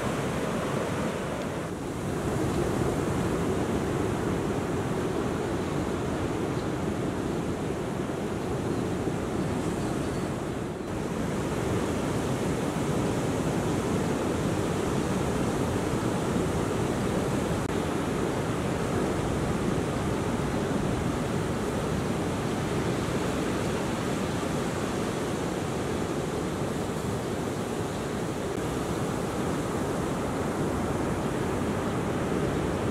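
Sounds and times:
ocean waves breaking: 0.0 - 8.3.

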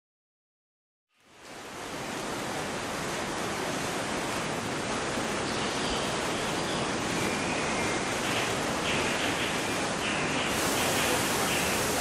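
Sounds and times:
heavy rain: 1.2 - 12.0
waterfall pouring: 7.0 - 12.0.

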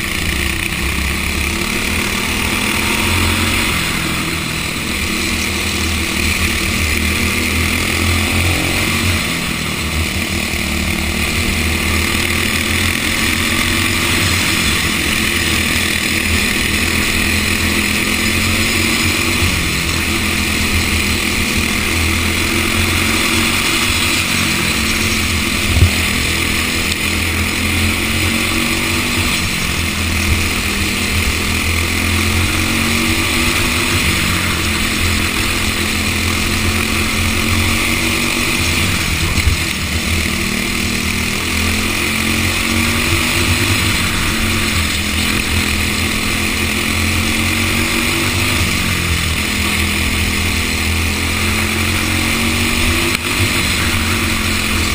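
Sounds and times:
kart engine at full pace: 0.0 - 54.9.

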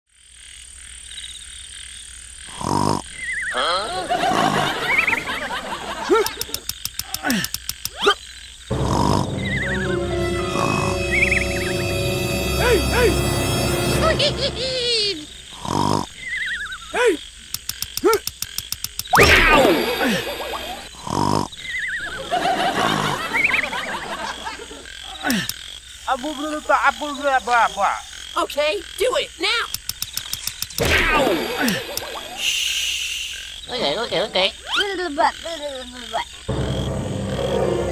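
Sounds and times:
frogs croaking: 0.1 - 37.9
comic snore: 2.5 - 5.0, 7.1 - 9.6, 15.5 - 16.1, 19.4 - 21.6
fast run of ticks: 6.1 - 8.2, 17.4 - 19.2, 25.4 - 25.6, 29.6 - 30.8, 31.6 - 32.4
steady high tone: 8.7 - 15.4
cartoon falling whistles: 19.1 - 20.7.

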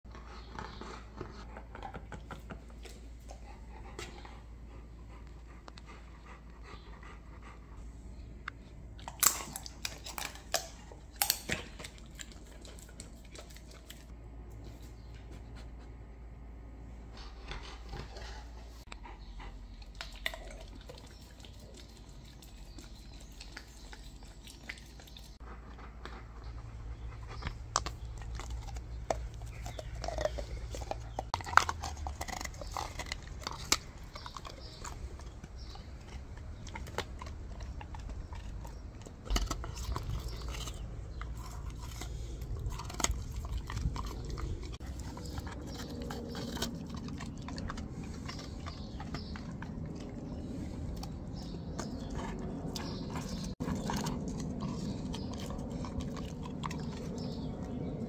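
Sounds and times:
dog chewing frozen treat: 19.8 - 58.0.

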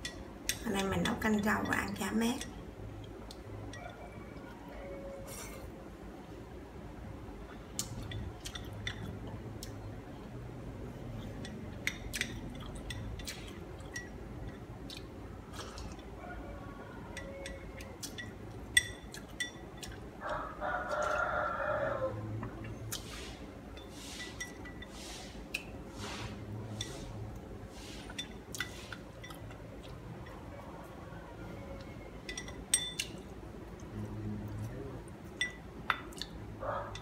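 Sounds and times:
rooster crowing: 3.7 - 5.3, 16.2 - 18.0, 20.2 - 22.4, 30.5 - 32.4
chopsticks clinking on porcelain bowl: 17.1 - 20.4, 31.8 - 33.2, 35.3 - 36.3.

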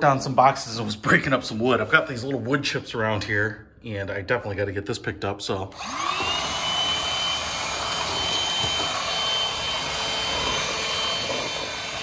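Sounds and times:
stick vacuum motor whine: 5.7 - 12.0.

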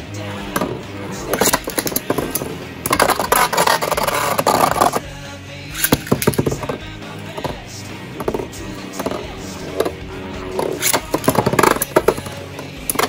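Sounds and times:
background music: 0.0 - 13.0
spinning tops clacking: 0.4 - 5.0, 5.7 - 13.0.

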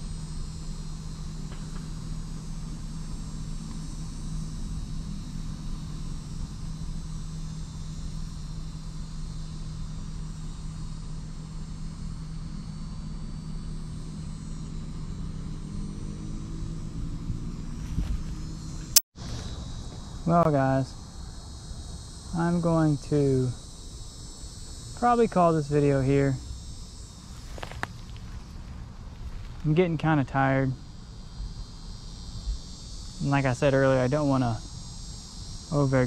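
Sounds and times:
constant hum: 0.0 - 36.0
insects trilling: 0.0 - 36.0.

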